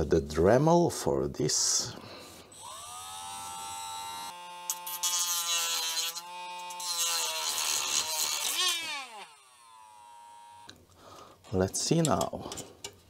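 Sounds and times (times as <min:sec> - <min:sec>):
rotary tool cutting plastic: 0:02.5 - 0:10.8.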